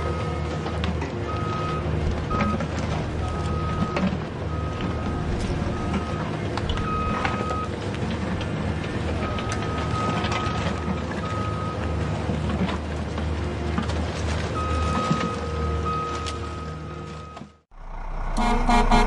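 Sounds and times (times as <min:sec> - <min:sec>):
motor hum: 0:17.7 - 0:19.0.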